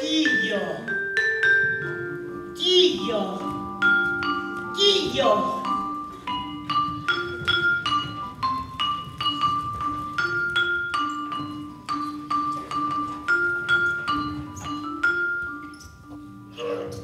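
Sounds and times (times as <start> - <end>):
mallet percussion notes: 0.0 - 17.0.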